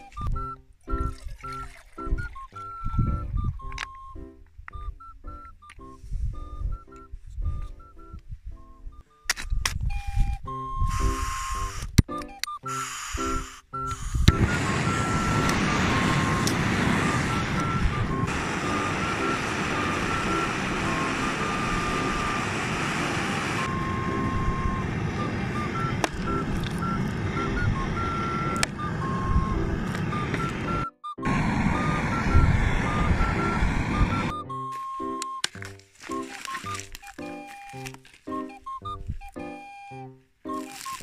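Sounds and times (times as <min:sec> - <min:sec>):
gas burner rushing: 0:12.8 - 0:34.4.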